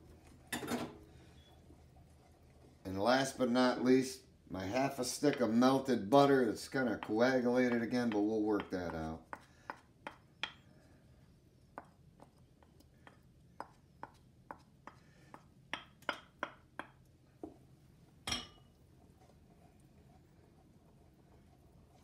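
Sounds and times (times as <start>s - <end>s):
wooden spoon tapping ceramic bowl: 6.9s - 10.6s, 13.0s - 17.6s.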